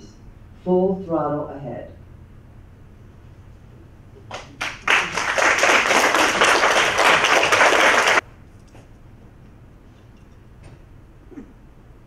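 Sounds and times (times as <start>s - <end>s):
audience applauding: 4.3s - 8.2s.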